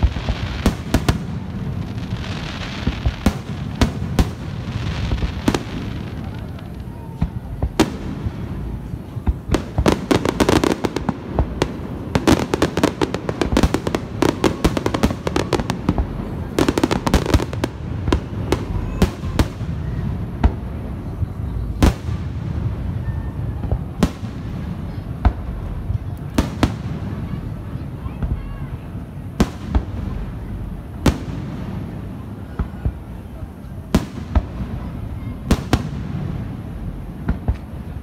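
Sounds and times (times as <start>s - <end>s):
fireworks bangs and crackles: 0.0s - 38.0s.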